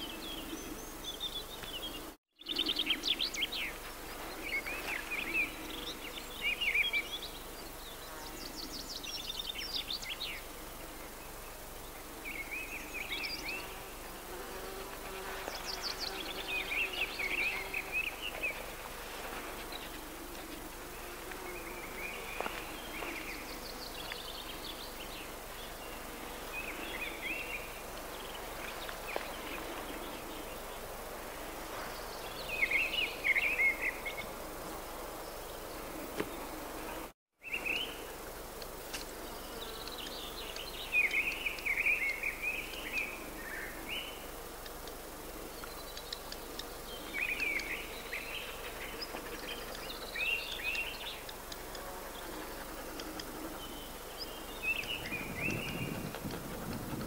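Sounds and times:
outdoor background hiss: 0:00.0 - 0:57.0
songbirds warbling: 0:39.3 - 0:57.0.

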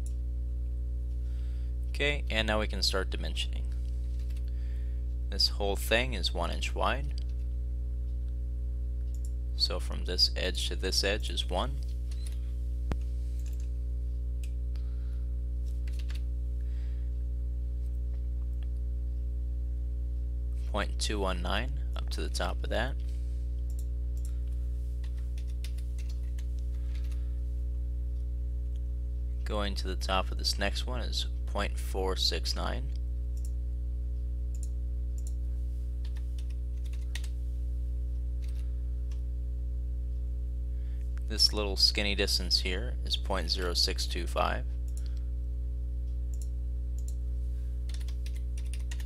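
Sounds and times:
low electrical hum: 0:00.0 - 0:49.0.

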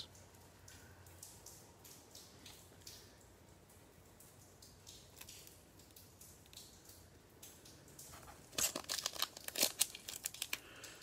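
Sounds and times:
plastic wrapper crinkling and ripping: 0:08.0 - 0:11.0
plastic wrapper rustling: 0:08.0 - 0:11.0.

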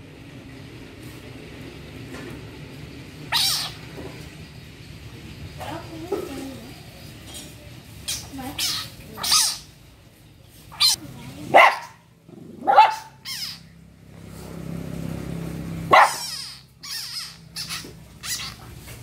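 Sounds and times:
small dog barking and yipping: 0:03.3 - 0:03.8, 0:08.6 - 0:09.6, 0:10.7 - 0:13.7, 0:15.8 - 0:18.8.

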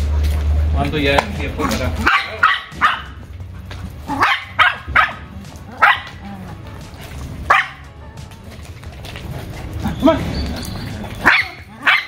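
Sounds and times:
dog barking: 0:02.0 - 0:03.3, 0:04.0 - 0:06.3, 0:07.5 - 0:07.9, 0:11.2 - 0:12.0.

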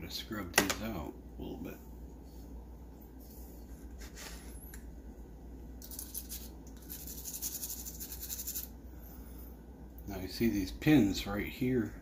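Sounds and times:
scrub brush scrubbing: 0:05.9 - 0:08.7.

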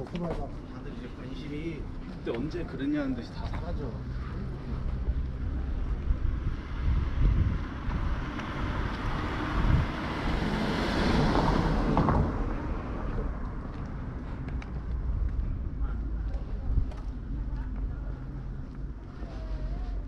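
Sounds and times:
wind rumble on microphone: 0:03.5 - 0:20.0
vehicle passing: 0:03.7 - 0:19.5.

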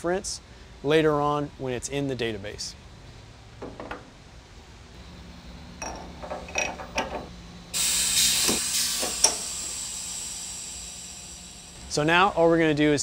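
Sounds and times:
metal tool holders clinking: 0:05.8 - 0:07.3
hiss of released air: 0:07.7 - 0:11.9.

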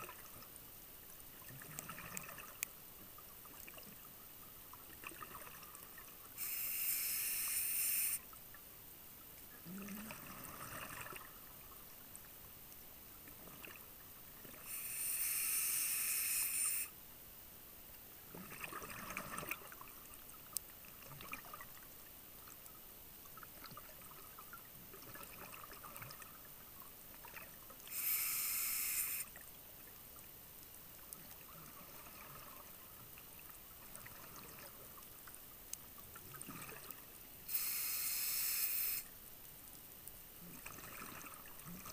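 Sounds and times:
hissing regulator breaths: 0:06.4 - 0:08.2, 0:14.6 - 0:16.9, 0:27.9 - 0:29.3, 0:37.5 - 0:39.0
diver exhaling bubbles underwater: 0:09.6 - 0:11.3.

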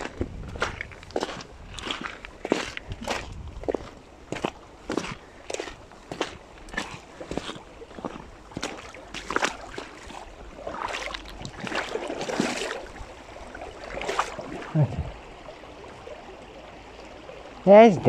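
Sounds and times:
footsteps: 0:00.0 - 0:12.8.

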